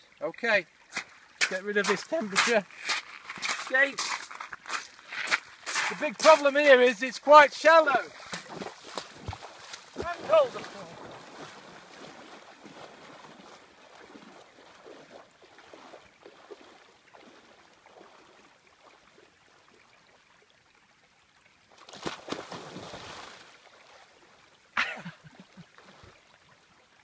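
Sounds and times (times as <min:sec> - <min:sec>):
water sloshing from wading: 0:07.6 - 0:20.7
body splashing into water: 0:07.7 - 0:18.3, 0:21.8 - 0:24.0.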